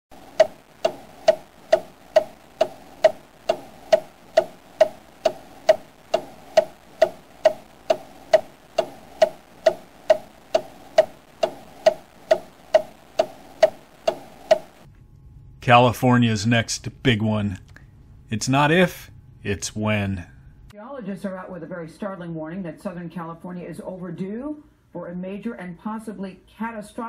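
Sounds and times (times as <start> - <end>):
clock ticking: 0.1 - 14.9.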